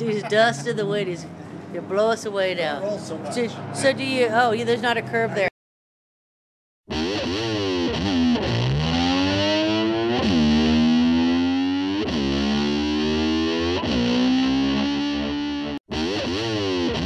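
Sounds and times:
distorted electric guitar slides: 6.9 - 17.0.

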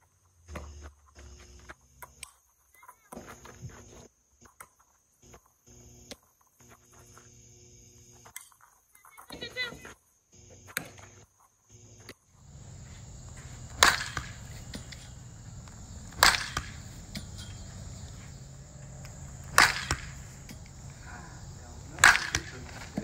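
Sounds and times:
bat cracking ball: 12.4 - 23.0.

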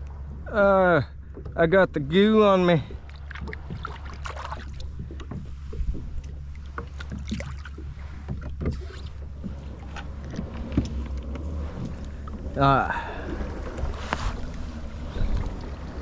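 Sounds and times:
low rumble: 0.0 - 16.0
water lapping against kayak hull: 0.0 - 16.0.

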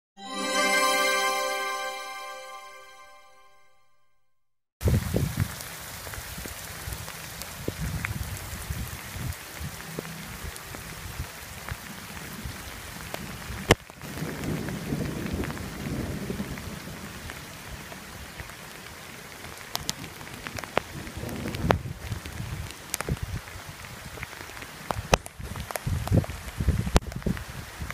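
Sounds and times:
steady rain in forest: 4.8 - 27.9
low rumbles of thunder: 14.1 - 17.2.

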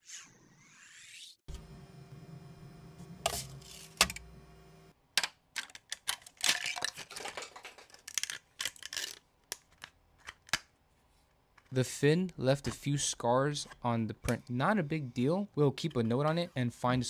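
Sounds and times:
printer humming: 1.5 - 4.9
plastic snapping and cracking: 5.2 - 10.7.

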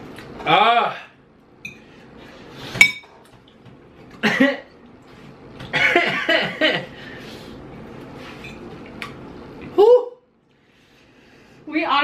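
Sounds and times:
man coughing: 4.2 - 4.7, 5.7 - 6.9.

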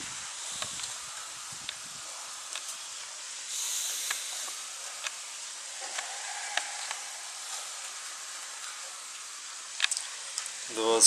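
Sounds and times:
high-pitched hiss: 0.0 - 11.0
faint clicks: 3.5 - 7.8, 8.4 - 10.6.

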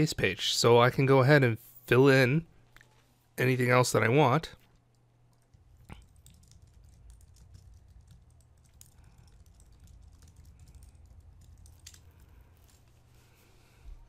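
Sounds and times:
keyboard typing: 4.7 - 12.7.

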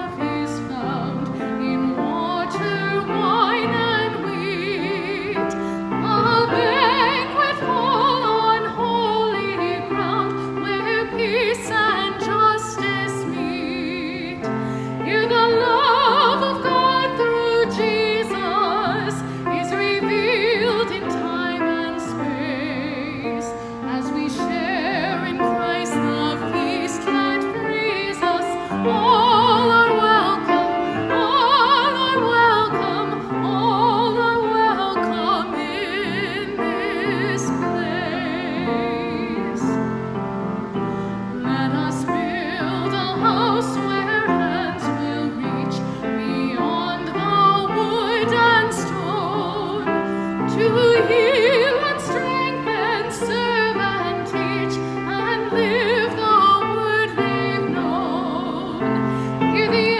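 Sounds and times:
woman singing operatic: 0.0 - 40.7, 41.3 - 59.9.

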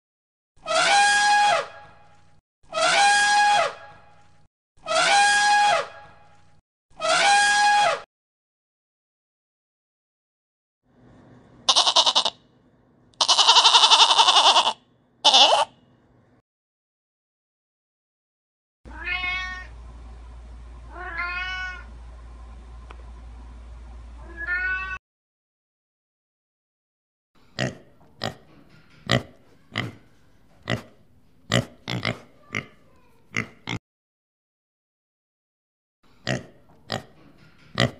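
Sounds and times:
deer calling: 11.7 - 12.4, 13.2 - 15.7
goat bleating: 11.7 - 12.4, 13.2 - 15.7.

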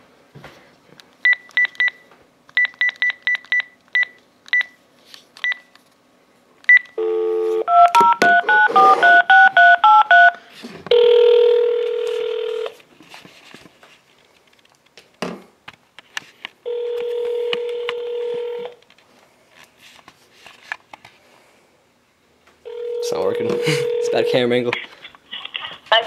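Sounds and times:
phone ringback tone: 7.0 - 12.8, 16.7 - 18.8, 22.7 - 24.5.

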